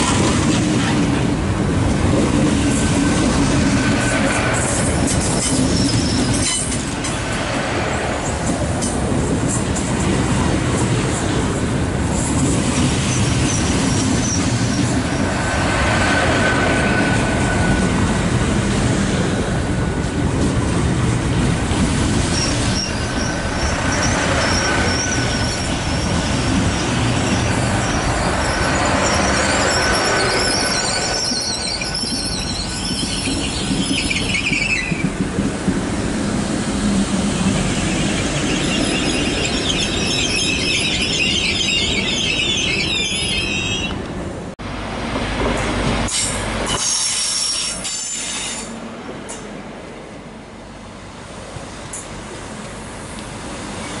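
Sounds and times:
quieter train passing: 0.0 - 54.0
train rumbling along platform: 0.0 - 54.0
high wheel squeal: 5.3 - 6.8, 22.3 - 35.1, 37.8 - 44.0, 46.1 - 48.7.

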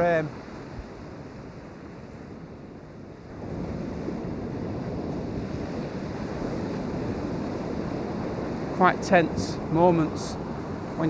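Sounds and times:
surf breaking on beach: 3.2 - 11.0.

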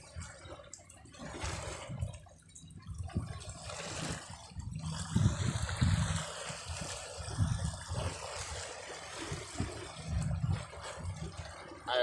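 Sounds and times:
low rumbling thumps: 9.2 - 11.6.

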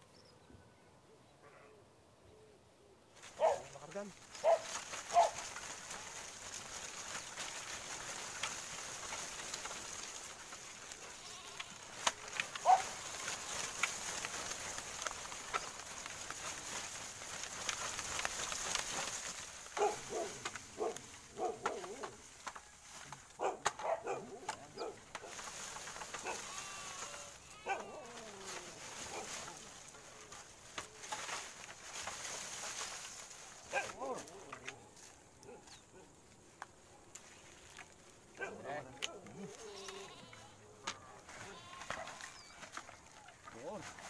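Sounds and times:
leaves and twigs rustling: 3.1 - 44.0
bleat-like animal calls: 11.0 - 12.0, 26.2 - 28.8, 39.4 - 40.6, 41.4 - 42.4.

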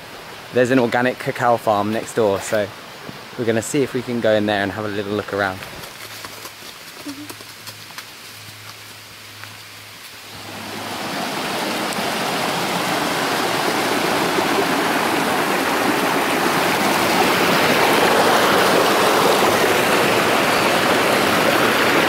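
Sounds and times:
stream rushing over rocks: 8.0 - 22.0.

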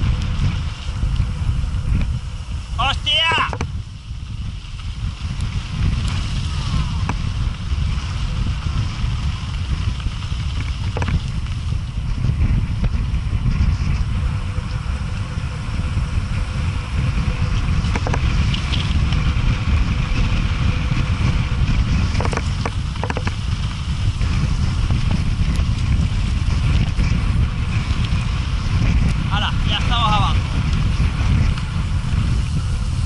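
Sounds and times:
wind buffeting microphone: 0.0 - 33.0
bike knocks and rattles: 4.8 - 29.3.

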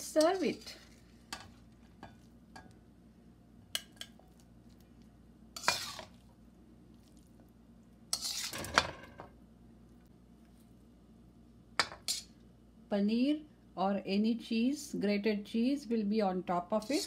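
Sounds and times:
metal spatula scraping a wok: 5.6 - 6.2, 8.1 - 9.0, 12.0 - 12.3.

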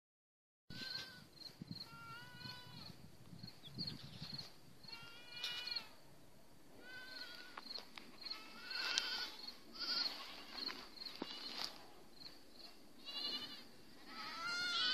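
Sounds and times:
young goats bleating: 0.7 - 3.0, 4.8 - 6.0, 6.7 - 11.8, 13.0 - 14.9.

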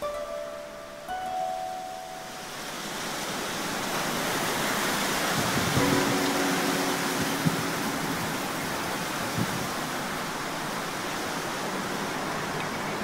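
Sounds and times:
wind rushing through shrubs: 0.0 - 13.0.

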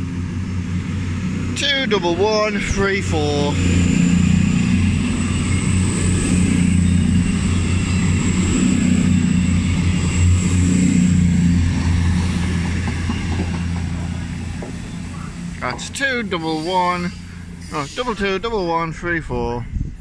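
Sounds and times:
diesel train engines droning: 0.0 - 20.0
thin high whine: 14.8 - 18.7.

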